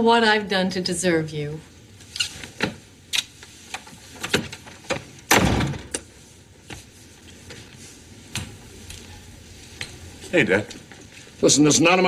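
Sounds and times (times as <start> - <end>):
door closing with a thud: 4.3 - 6.0.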